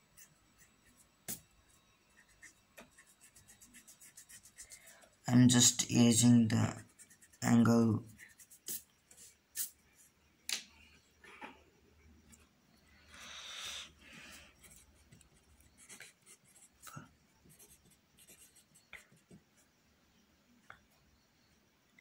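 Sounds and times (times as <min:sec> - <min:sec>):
pencil scratching on paper: 0:00.0 - 0:04.9, 0:06.8 - 0:09.8, 0:14.6 - 0:16.8, 0:17.5 - 0:19.4
hand rubbing on paper: 0:02.2 - 0:05.0, 0:08.1 - 0:09.8.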